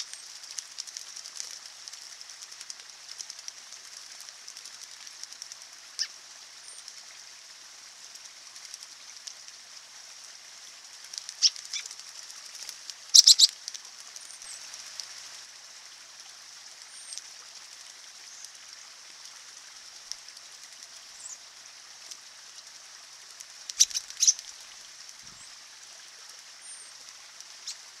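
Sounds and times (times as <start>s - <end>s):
birds splashing in water: 0.0s - 15.5s, 16.1s - 28.0s
wings fluttering: 0.0s - 15.5s, 16.1s - 28.0s
stream trickling: 0.0s - 28.0s
short high bird chirps: 13.2s - 13.5s.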